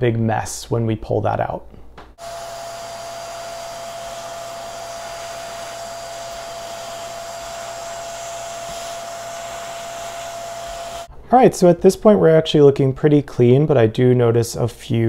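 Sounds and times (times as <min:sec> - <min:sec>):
vacuum cleaner running: 0:02.2 - 0:11.1.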